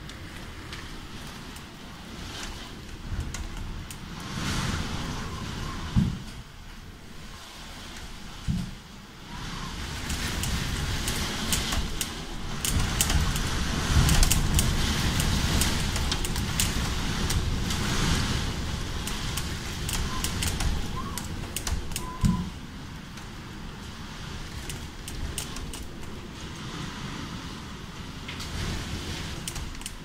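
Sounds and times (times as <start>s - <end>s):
rain drops tapping on window: 0.0s - 6.5s, 7.9s - 27.6s, 28.2s - 30.0s
storm wind gusting: 0.0s - 30.0s
thump: 6.0s - 6.3s.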